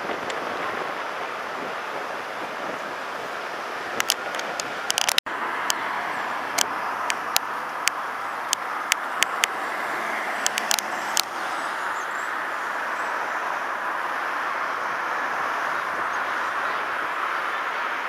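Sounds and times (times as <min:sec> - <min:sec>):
passing cars: 0:00.0 - 0:18.0
sharp clicks: 0:04.0 - 0:05.8, 0:06.6 - 0:09.6, 0:10.4 - 0:11.3.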